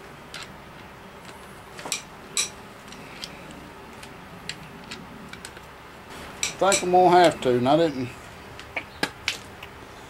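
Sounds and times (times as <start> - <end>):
metal bar clinking on engine parts: 1.8 - 2.6, 6.4 - 7.4.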